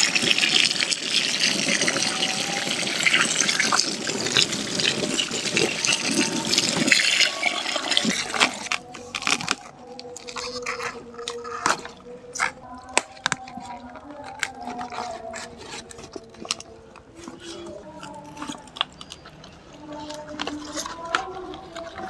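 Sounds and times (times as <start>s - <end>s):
water pouring and splashing: 0.0s - 9.6s.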